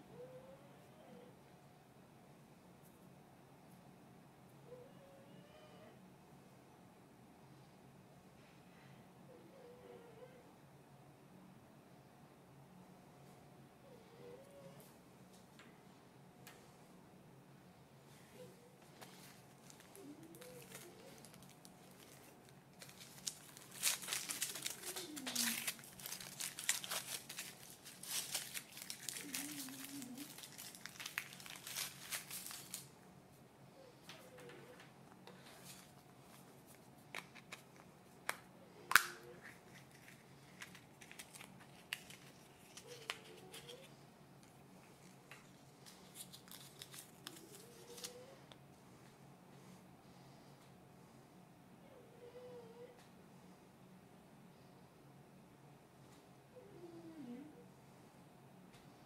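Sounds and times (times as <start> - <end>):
foil wrapper crinkling and tearing: 19.0 - 33.0, 38.9 - 43.9, 45.0 - 48.3.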